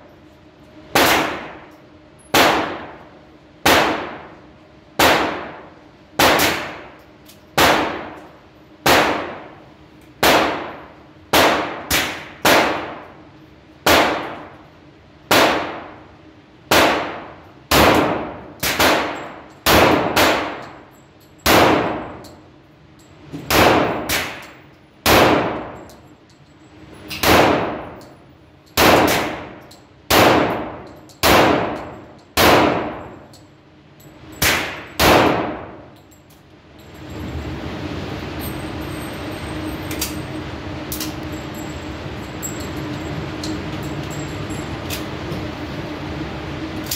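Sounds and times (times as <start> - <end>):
gunshots echoing indoors: 0.9 - 7.0, 7.6 - 9.6, 10.2 - 14.7, 15.3 - 20.8, 21.4 - 22.3, 23.5 - 26.0, 27.1 - 28.1, 28.7 - 33.3, 34.3 - 36.0.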